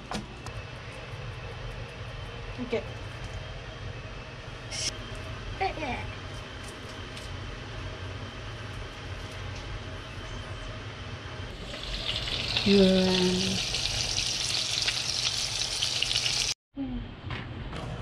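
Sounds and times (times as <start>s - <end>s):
patties sizzling in frying pan: 11.6s - 16.6s.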